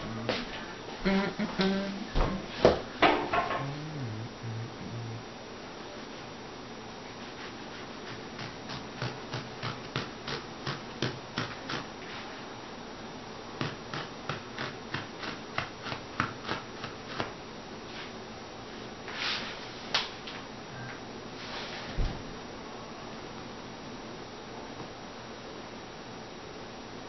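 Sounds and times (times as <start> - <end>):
blade shaving foam: 8.0 - 11.9, 13.6 - 17.3.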